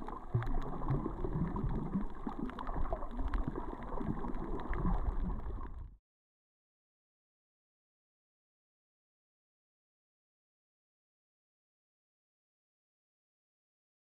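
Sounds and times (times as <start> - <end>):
sharp underwater clicks: 0.0 - 5.8
low underwater rumble: 0.0 - 6.0
underwater water sloshing: 0.0 - 6.0.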